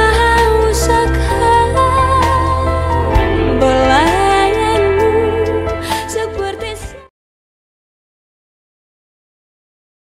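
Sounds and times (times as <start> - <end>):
low bass: 0.0 - 7.1
melodic background music: 0.0 - 7.1.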